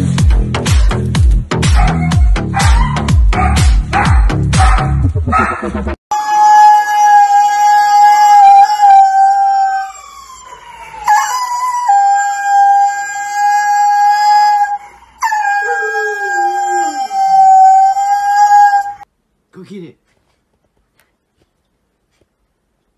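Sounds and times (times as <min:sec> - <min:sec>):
huskies howling: 0:01.8 - 0:19.0.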